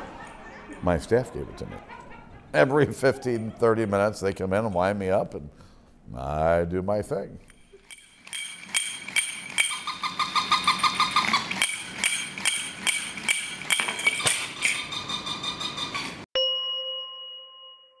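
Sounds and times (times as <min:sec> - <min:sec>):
toy monkey clashing cymbals: 0:07.8 - 0:10.0, 0:11.6 - 0:14.9
single chime ringing: 0:16.4 - 0:18.0.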